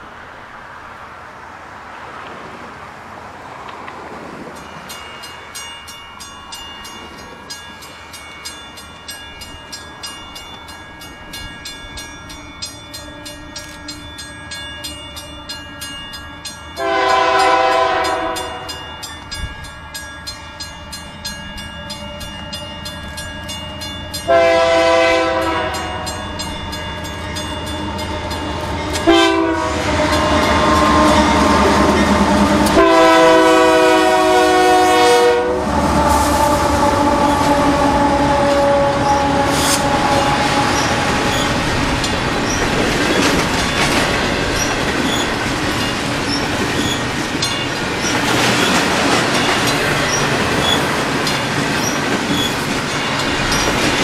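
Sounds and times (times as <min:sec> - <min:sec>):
low rumble of train: 0:00.0 - 0:54.0
crossing bell ringing: 0:04.5 - 0:54.0
locomotive air horn blasts: 0:16.8 - 0:18.8, 0:24.3 - 0:26.2, 0:29.0 - 0:41.6.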